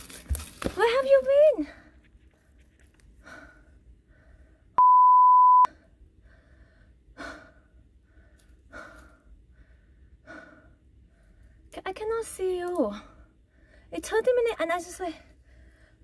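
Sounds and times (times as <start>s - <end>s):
woman breathing heavily: 3.1s - 4.8s, 5.7s - 11.7s, 12.9s - 13.9s, 15.3s - 16.0s
electronic beep: 4.8s - 5.7s.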